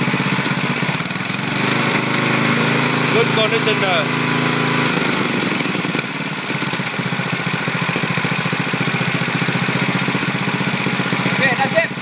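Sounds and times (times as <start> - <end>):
engine idling: 0.0 - 12.0.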